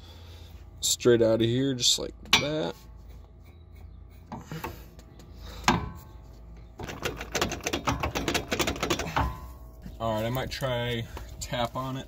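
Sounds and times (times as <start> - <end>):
sharp metal clank with ring: 2.3 - 2.7
metal clunks and rattling: 5.6 - 9.7
fast clicking rattle: 6.8 - 9.2.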